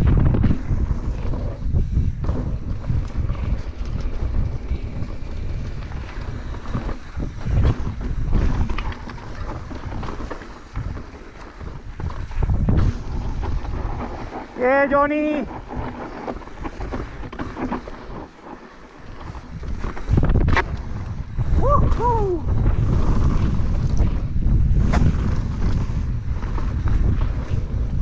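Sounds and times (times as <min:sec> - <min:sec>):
bike knocks and rattles: 0:00.0 - 0:14.4, 0:22.5 - 0:28.0
wind rumbling on microphone: 0:00.0 - 0:28.0.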